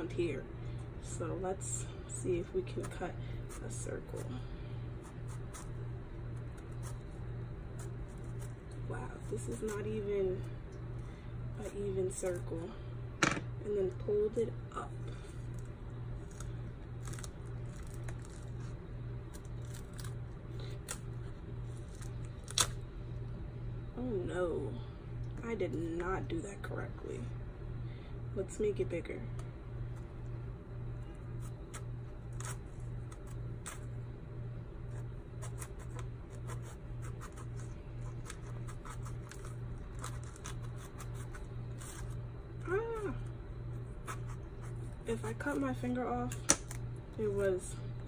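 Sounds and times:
steady low hum: 0.0s - 48.0s
knife cutting fruit rind: 2.5s - 10.4s, 31.2s - 33.9s, 34.8s - 43.1s, 43.7s - 45.7s
pomegranate rind cracking: 15.5s - 22.9s, 35.4s - 43.0s, 46.4s - 46.9s.

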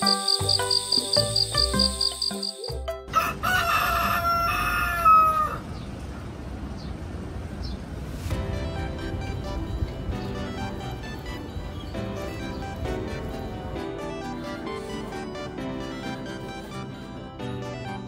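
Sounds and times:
insect chirping: 0.0s - 2.8s
gentle music notes: 0.0s - 3.1s, 8.3s - 18.0s
city street noise: 0.0s - 18.0s
rooster crowing: 3.1s - 5.7s.

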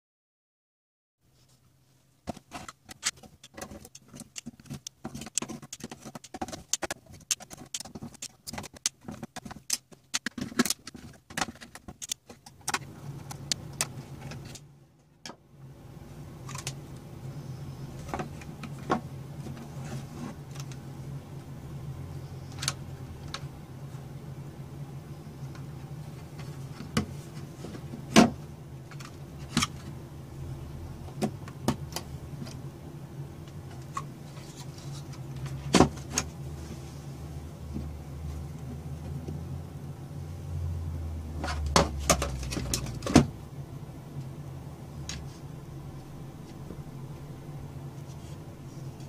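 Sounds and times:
steady low hum: 1.3s - 49.0s
small clicks and clatter of parts: 2.3s - 15.4s.

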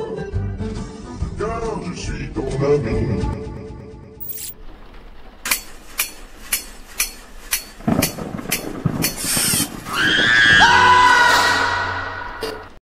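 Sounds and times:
burst of rough noise: 7.3s - 12.8s.

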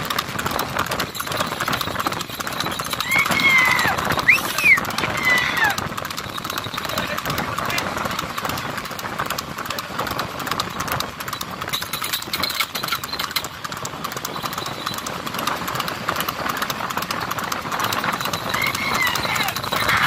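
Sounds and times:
horse hooves on asphalt: 0.0s - 20.0s.

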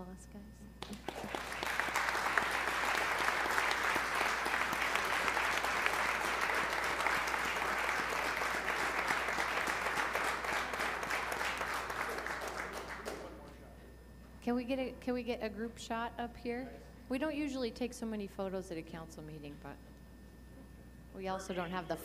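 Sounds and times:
audience applauding: 0.8s - 13.5s.

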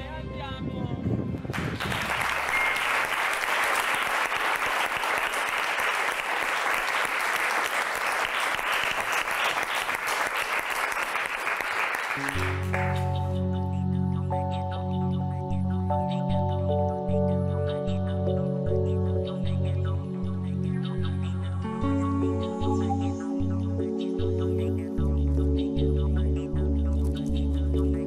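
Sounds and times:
audience applauding: 1.5s - 13.4s
music with held notes and low chords: 12.2s - 28.0s.

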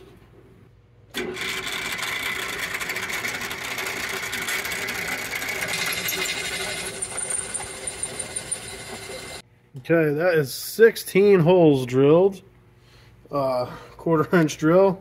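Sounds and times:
drill press whirring: 1.1s - 9.4s.

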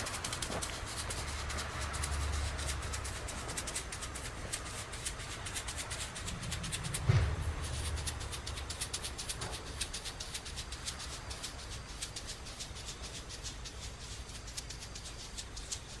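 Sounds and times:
faint irregular ticks: 0.0s - 16.0s
steady low rumble: 0.0s - 16.0s
loud low thump: 6.7s - 8.5s.

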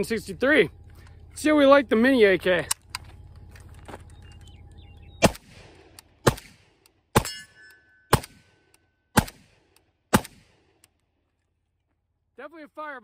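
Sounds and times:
pistol gunshots: 5.2s - 7.5s, 8.1s - 10.8s
metallic ring: 7.2s - 9.0s.

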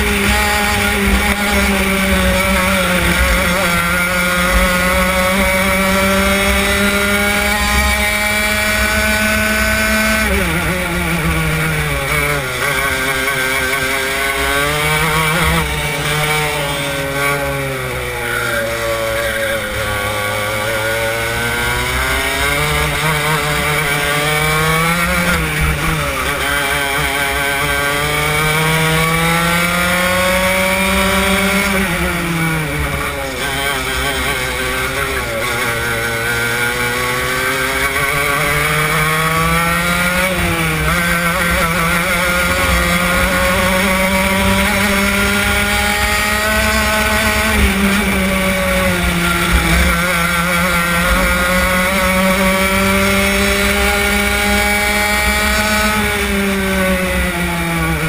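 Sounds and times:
kart engine at high revs: 0.0s - 58.0s.

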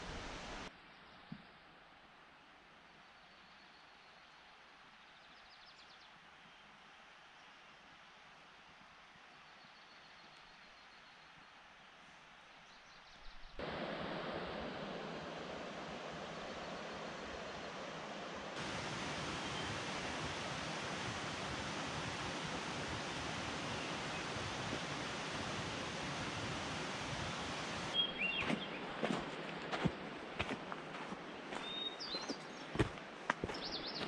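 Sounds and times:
faint outdoor ambience: 0.0s - 34.0s
steady rushing noise: 13.6s - 28.0s.

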